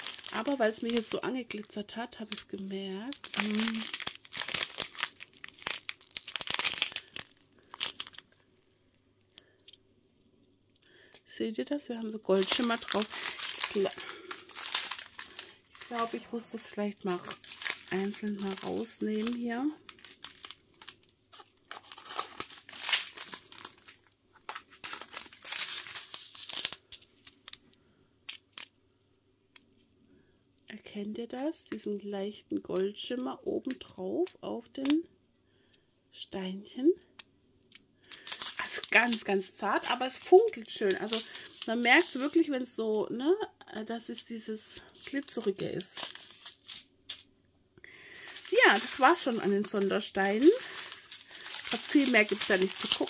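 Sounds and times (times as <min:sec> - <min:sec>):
plastic bag crinkling: 0:00.0 - 0:09.8, 0:12.2 - 0:28.8, 0:37.7 - 0:42.5, 0:44.8 - 0:47.3, 0:47.9 - 0:53.0.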